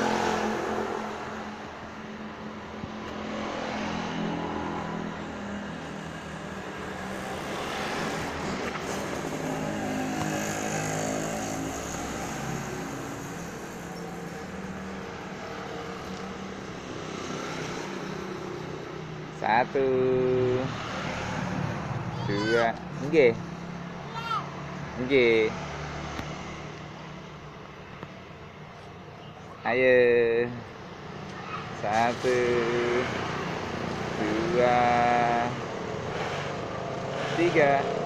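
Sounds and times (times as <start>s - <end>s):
motor vehicle engines passing: 0.0s - 38.0s.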